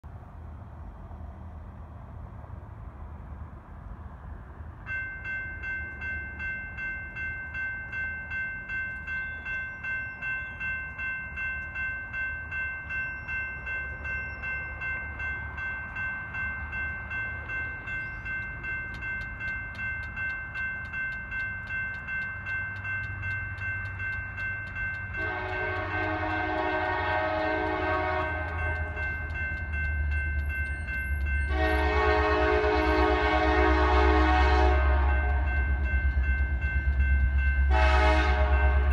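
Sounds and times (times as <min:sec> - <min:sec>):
freight train rumble: 0:00.0 - 0:38.9
crossing warning bell ringing: 0:04.8 - 0:38.9
train horn blasts: 0:25.1 - 0:29.3, 0:31.4 - 0:35.8, 0:37.6 - 0:38.9.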